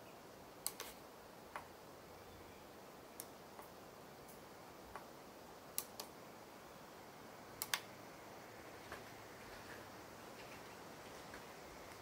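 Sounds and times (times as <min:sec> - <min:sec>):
faint steady hiss: 0:00.0 - 0:12.0
toggle switches clicking: 0:07.6 - 0:07.9.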